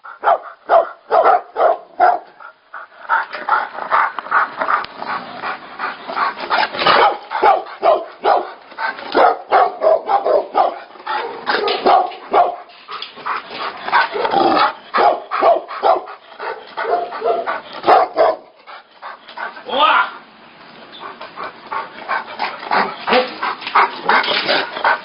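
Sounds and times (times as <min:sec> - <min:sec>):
dogs barking rapidly: 0:00.0 - 0:19.6, 0:21.0 - 0:25.0
dogs growling: 0:02.4 - 0:19.6, 0:21.0 - 0:25.0.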